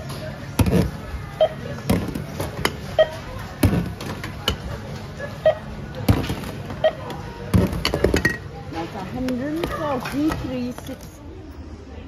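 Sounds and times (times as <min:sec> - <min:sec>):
checkout scanner beeps: 0:01.2 - 0:01.9, 0:02.7 - 0:03.5, 0:05.2 - 0:06.0, 0:06.6 - 0:07.3.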